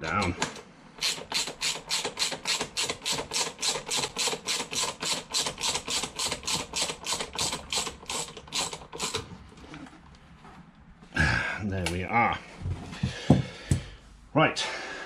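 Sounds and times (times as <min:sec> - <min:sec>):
ratchet wrench clicking: 0:01.0 - 0:09.2.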